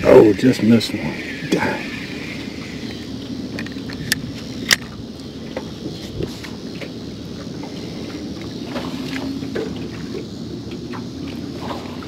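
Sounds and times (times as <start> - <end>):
water noise: 0.0 - 12.0
wind: 0.0 - 12.0
fishing tackle clicking: 3.5 - 4.9.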